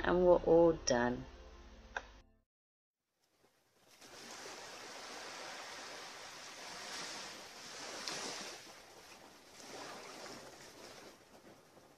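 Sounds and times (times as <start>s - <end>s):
waves washing onto beach: 3.8s - 11.9s.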